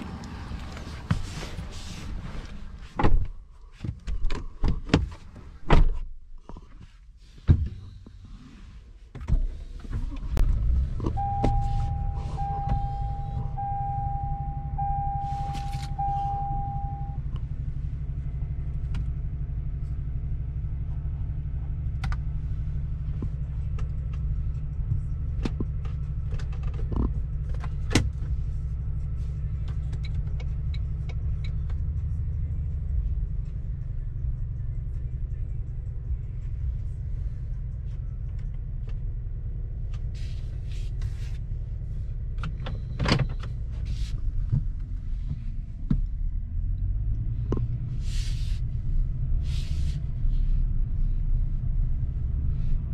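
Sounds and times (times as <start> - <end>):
chime beeping: 11.2 - 17.2.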